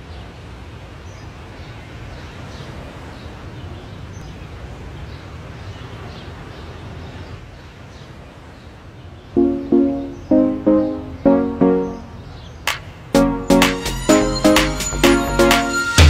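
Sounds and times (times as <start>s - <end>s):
birds chirping faintly: 1.1s - 13.5s
ambient background noise: 9.3s - 13.5s.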